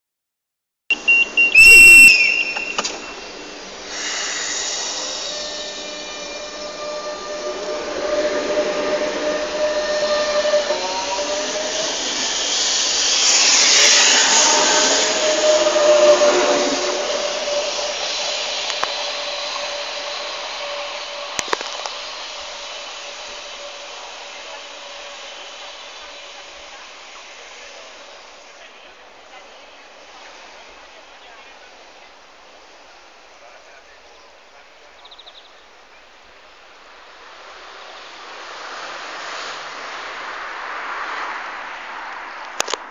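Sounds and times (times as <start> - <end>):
shrill whistle blast: 0.9 - 3.5, 4.6 - 18.4
high warning tone: 0.9 - 3.8
electric train pulling away: 0.9 - 28.5.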